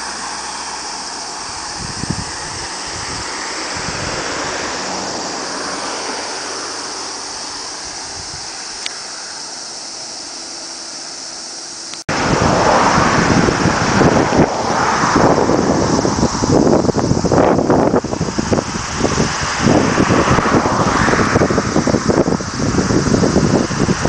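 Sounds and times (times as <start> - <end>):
wind buffeting microphone: 0.0 - 10.4, 12.1 - 24.0
road traffic: 0.0 - 24.0
wind: 0.0 - 24.0.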